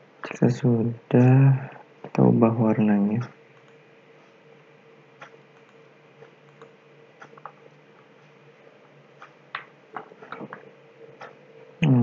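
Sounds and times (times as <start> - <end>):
faint steady hum: 0.0 - 12.0
computer mouse clicking: 5.2 - 7.6.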